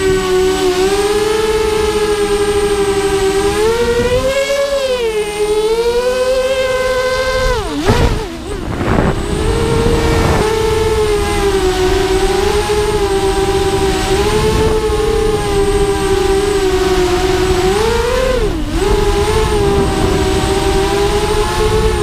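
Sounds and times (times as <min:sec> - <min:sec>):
drone motors whining: 0:00.0 - 0:22.0
rushing noise: 0:07.8 - 0:12.0.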